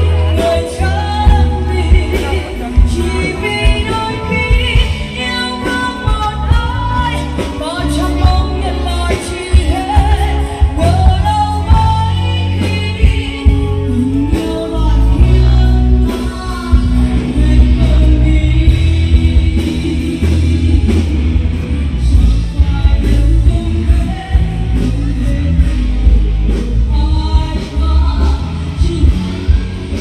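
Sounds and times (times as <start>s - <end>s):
band playing pop song: 0.0s - 30.0s
heavy bass: 0.0s - 30.0s
person singing: 0.0s - 30.0s
steady drum beat: 0.0s - 30.0s.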